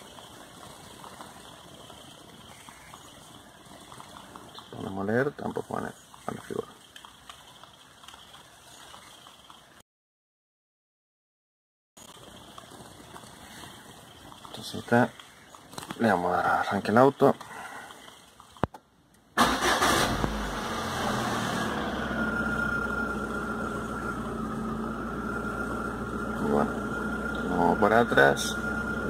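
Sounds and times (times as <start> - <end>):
car starter cranking: 19.4 - 22.1
car engine idling: 19.4 - 29.0
thin steady whine: 22.0 - 29.0.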